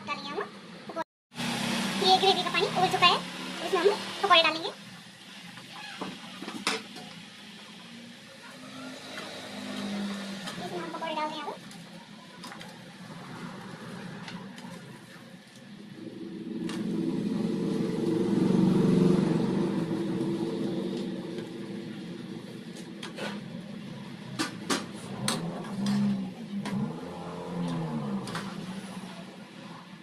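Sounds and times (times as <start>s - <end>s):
low engine-like hum: 7.7s - 30.0s.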